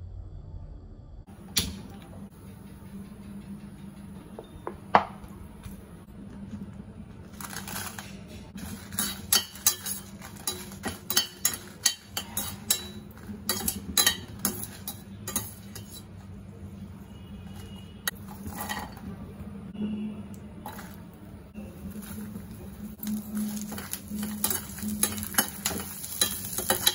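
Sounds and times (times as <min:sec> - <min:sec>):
spoon scraping steel pan: 0:08.6 - 0:16.2.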